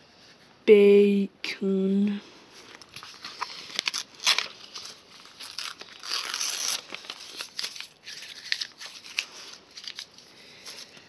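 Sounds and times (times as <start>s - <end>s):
paper tearing and crumpling: 2.7s - 11.0s.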